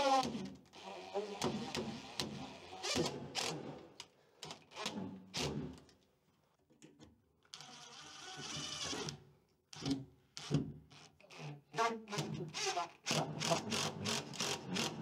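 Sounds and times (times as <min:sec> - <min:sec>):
cordless drill driving screws: 0:07.5 - 0:09.2, 0:12.2 - 0:15.0.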